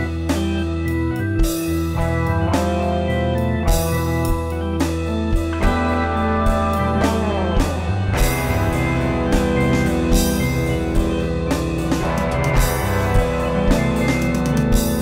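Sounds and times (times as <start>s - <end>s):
instrumental rock band playing: 0.0s - 15.0s
regular drum beat: 1.4s - 15.0s.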